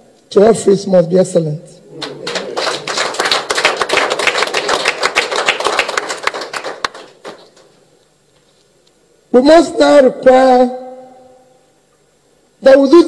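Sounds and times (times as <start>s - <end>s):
hands clapping: 2.0s - 7.8s.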